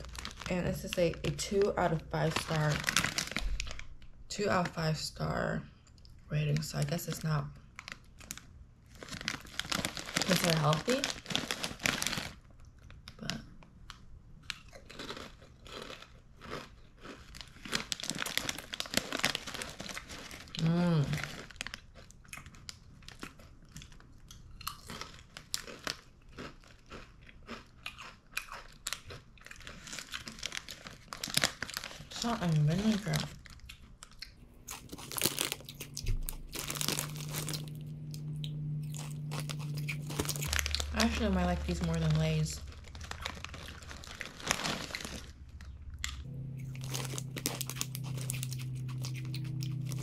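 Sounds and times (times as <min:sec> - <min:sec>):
crunching potato chip: 0:00.0 - 0:04.0, 0:07.8 - 0:50.0
chip bag crinkling: 0:00.0 - 0:04.8, 0:06.5 - 0:50.0
steady low hum: 0:32.2 - 0:50.0.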